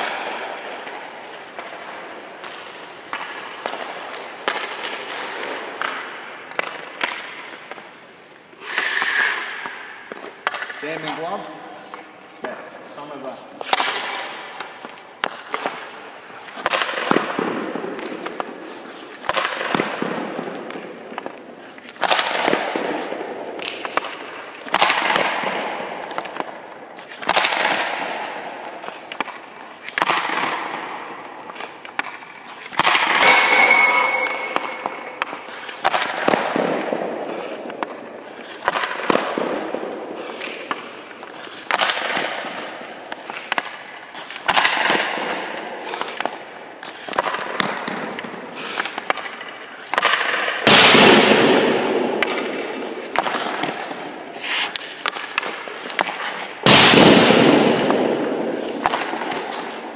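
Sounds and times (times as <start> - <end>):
puck hitting goalie: 0.0 - 8.0, 8.6 - 59.9
hockey stick cracking on puck: 0.0 - 59.9.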